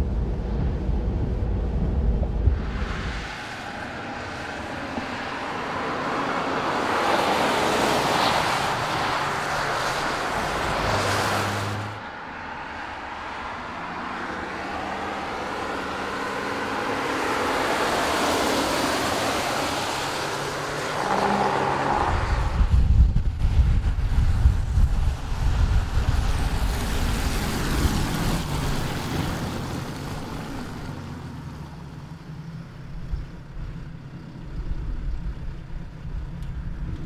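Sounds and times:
car engine passing: 0:00.0 - 0:34.7
tyres hissing on wet tarmac: 0:02.6 - 0:12.0, 0:23.7 - 0:32.7.

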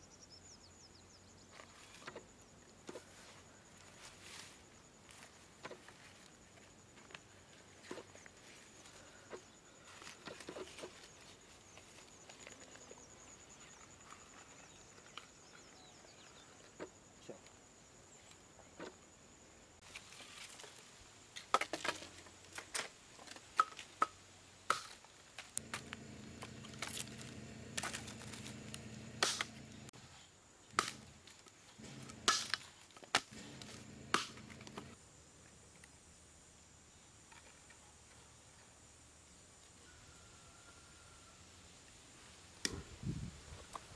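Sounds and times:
blade chopping into log: 0:25.6 - 0:29.9, 0:30.7 - 0:34.9
low steady hum: 0:25.6 - 0:29.9.

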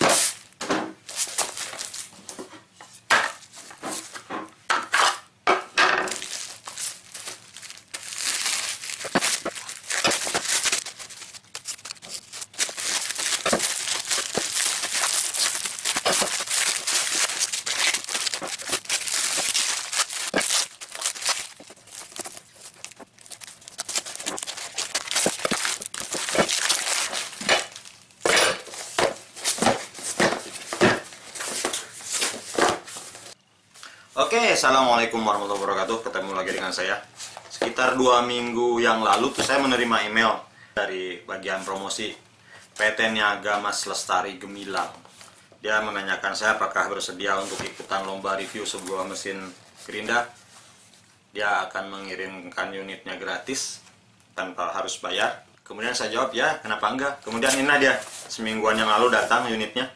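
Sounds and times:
plastic wrap crinkling and tearing: 0:00.0 - 0:02.2, 0:06.1 - 0:33.4.

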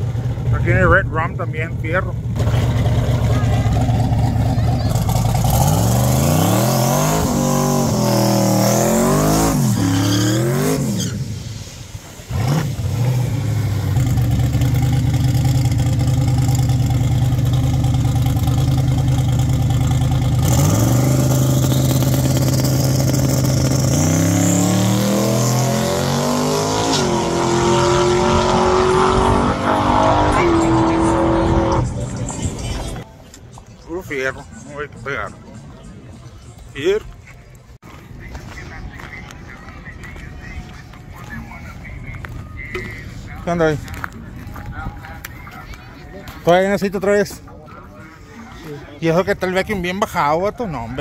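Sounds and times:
pickup truck engine revving: 0:01.7 - 0:11.5, 0:12.1 - 0:32.0.

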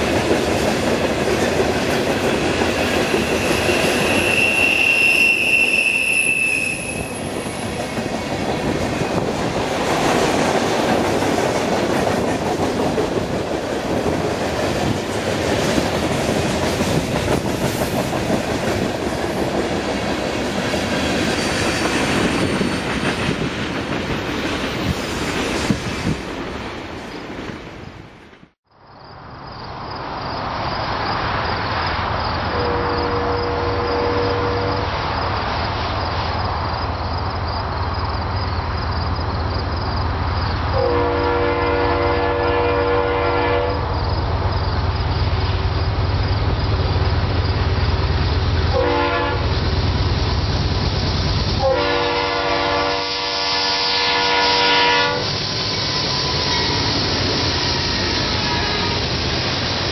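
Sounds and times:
diesel locomotive rumble: 0:32.0 - 0:59.9
locomotive horn chime: 0:40.8 - 0:43.8, 0:48.8 - 0:49.4, 0:51.6 - 0:55.2.

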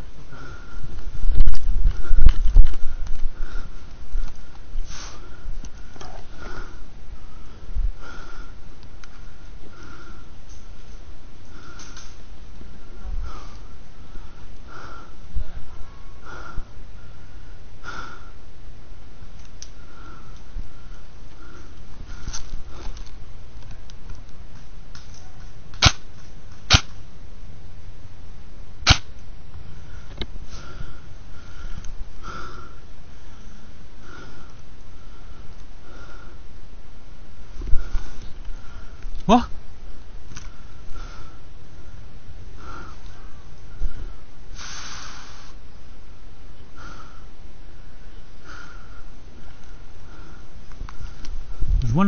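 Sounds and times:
low rumble on microphone: 0:00.0 - 0:10.2, 0:50.1 - 0:52.0
person breathing heavily: 0:00.0 - 0:18.5, 0:19.7 - 0:23.2, 0:29.7 - 0:36.6, 0:37.4 - 0:39.5, 0:40.4 - 0:45.7, 0:46.6 - 0:52.0
airsoft gun shots: 0:25.8 - 0:26.1, 0:26.7 - 0:27.0, 0:28.8 - 0:29.1.

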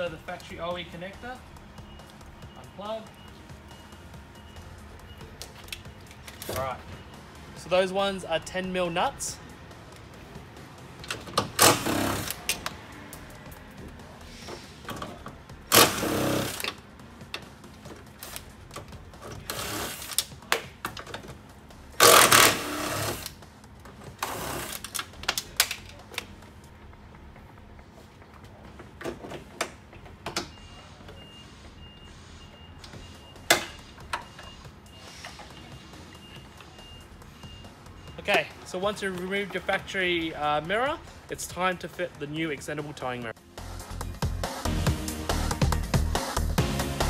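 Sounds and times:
power tool bursts: 0:11.6 - 0:12.4, 0:15.7 - 0:16.6, 0:22.0 - 0:23.3.

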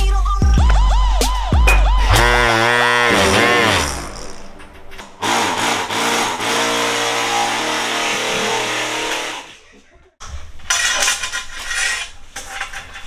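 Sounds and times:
power tool motor running: 0:02.0 - 0:04.5, 0:05.2 - 0:09.5.

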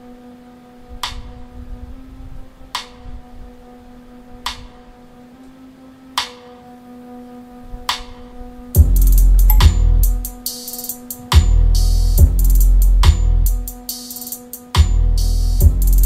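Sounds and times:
held low tone: 0:08.8 - 0:10.4.

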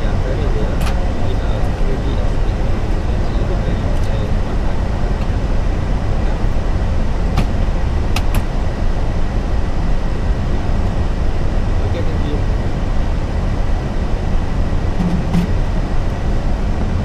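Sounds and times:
airflow and air-conditioning rush: 0:00.0 - 0:17.0.

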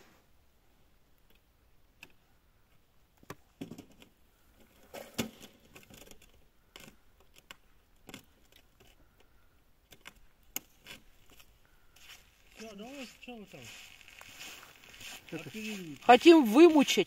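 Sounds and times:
clothing rustling: 0:12.0 - 0:16.8.

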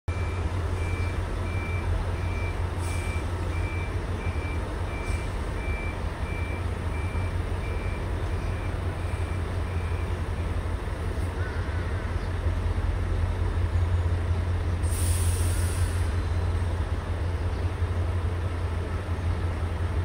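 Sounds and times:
electronic warning beeps: 0:00.1 - 0:10.2
diesel locomotive rumble: 0:00.1 - 0:20.0.

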